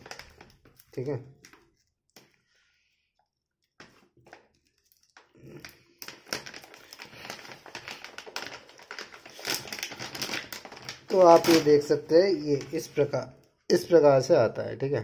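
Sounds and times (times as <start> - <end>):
plastic snack pouch crinkling: 0.0 - 2.4, 3.5 - 13.2.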